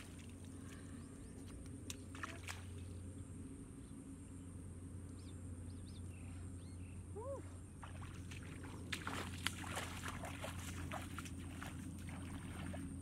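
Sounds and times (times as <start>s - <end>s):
wading splashes in muddy water: 0.0s - 0.9s, 1.8s - 3.0s, 7.8s - 13.0s.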